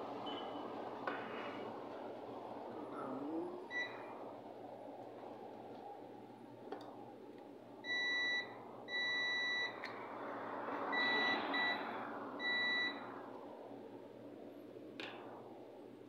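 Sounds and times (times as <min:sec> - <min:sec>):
multimeter continuity beeps: 0:03.7 - 0:04.0, 0:07.8 - 0:09.8, 0:10.9 - 0:11.8, 0:12.4 - 0:13.0.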